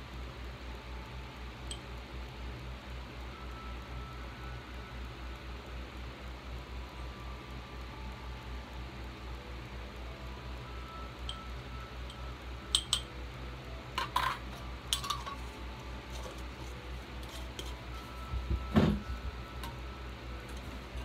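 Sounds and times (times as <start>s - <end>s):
steady low hum: 0.0s - 21.0s
metal spoon clinking glass jar: 14.0s - 15.5s.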